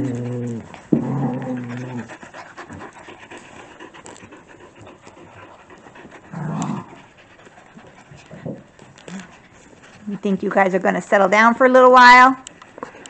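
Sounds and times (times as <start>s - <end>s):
puppy growling: 0.0s - 10.1s
puppies panting and snuffling: 0.0s - 13.0s.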